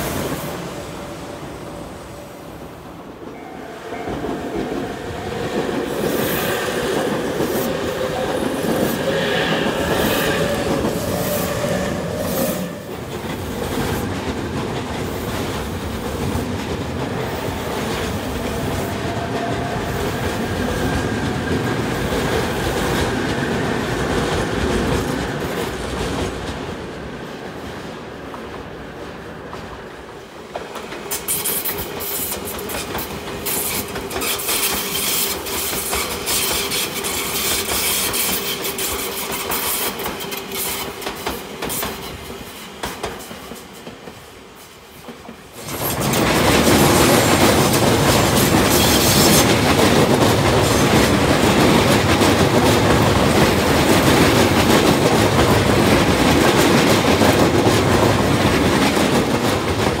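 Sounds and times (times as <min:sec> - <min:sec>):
train rumble: 0:00.0 - 1:00.0
train wheels clacking over rail joints: 0:30.5 - 1:00.0.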